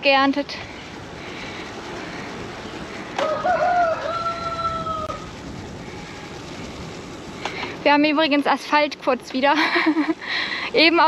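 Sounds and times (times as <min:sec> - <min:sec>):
steady rushing background noise: 0:00.0 - 0:11.0
rooster crowing: 0:03.0 - 0:05.3.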